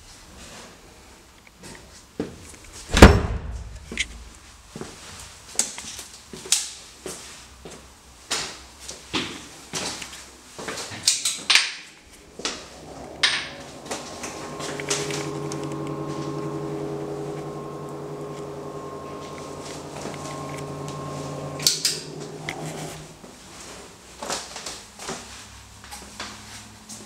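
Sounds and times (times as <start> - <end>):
extractor fan humming: 12.0 - 23.6.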